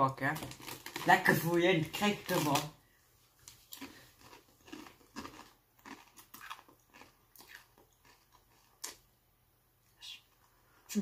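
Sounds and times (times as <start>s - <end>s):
chip crunching: 0.2s - 2.8s, 3.4s - 9.1s.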